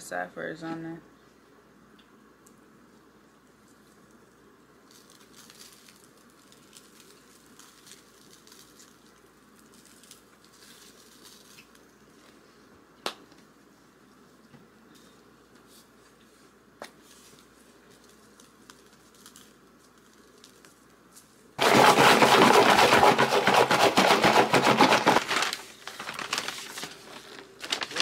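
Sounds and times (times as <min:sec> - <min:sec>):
paper bag rustling: 0:21.6 - 0:28.0.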